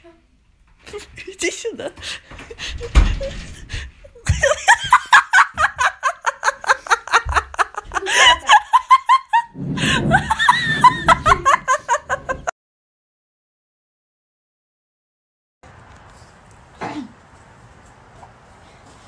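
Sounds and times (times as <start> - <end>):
high-pitched pulsing laughter: 4.2 - 12.5.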